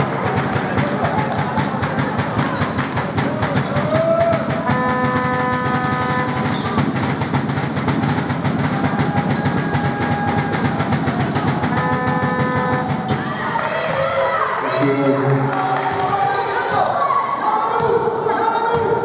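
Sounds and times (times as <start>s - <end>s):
fast steady drumbeat: 0.0s - 13.6s.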